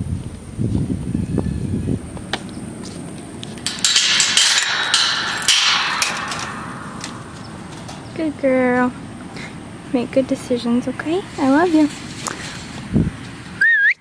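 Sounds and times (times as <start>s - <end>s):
wind rumble on microphone: 0.0s - 4.5s, 10.3s - 13.7s
chain rattling against metal gate: 3.4s - 8.8s.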